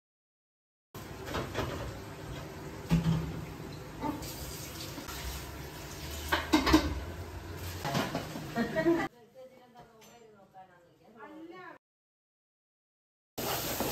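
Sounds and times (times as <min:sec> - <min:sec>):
running tap water: 0:01.0 - 0:08.9, 0:13.4 - 0:13.9
kitchenware knocks and clinks: 0:01.2 - 0:02.0, 0:06.2 - 0:07.1, 0:07.8 - 0:08.6.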